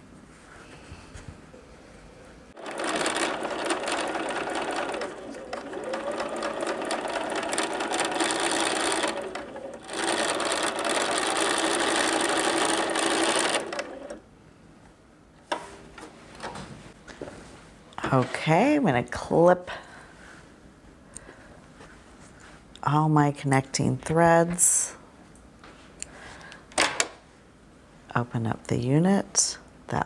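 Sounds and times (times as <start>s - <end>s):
sewing machine stitching: 2.6s - 14.2s.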